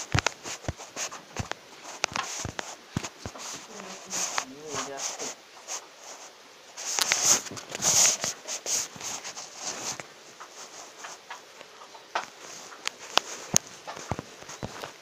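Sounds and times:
phone handling rustle and knocks: 0.0s - 5.4s, 11.0s - 15.0s.

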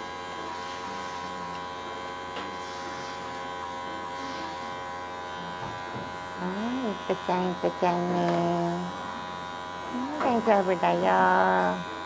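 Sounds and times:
electric clippers buzzing: 0.0s - 12.0s.

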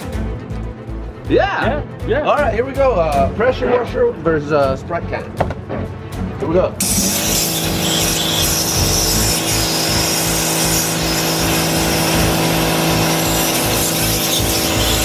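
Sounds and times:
pressure washer spray hiss: 6.8s - 15.0s.

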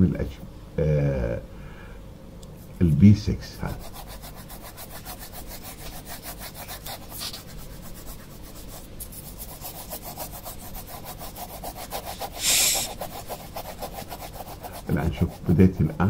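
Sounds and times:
pencil shading on paper: 3.8s - 16.0s.

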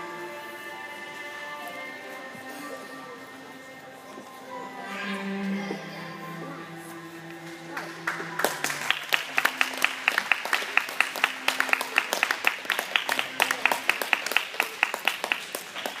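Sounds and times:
skating music: 0.0s - 16.0s
audience clapping: 7.4s - 16.0s.

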